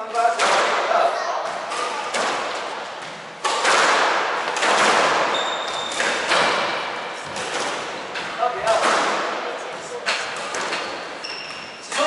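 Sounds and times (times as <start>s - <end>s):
squash ball cracks echoing: 0.2s - 11.2s
shoe squeaking on wooden floor: 5.2s - 8.8s, 9.8s - 12.0s.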